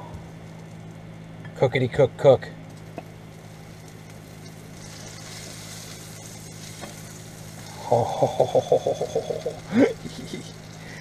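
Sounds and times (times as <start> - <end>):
sandwich sizzling in pan: 2.7 - 11.0.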